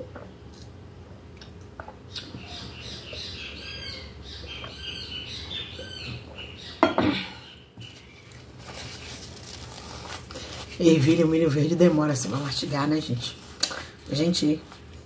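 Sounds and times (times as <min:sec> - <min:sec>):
bird squawking: 0:02.2 - 0:06.8.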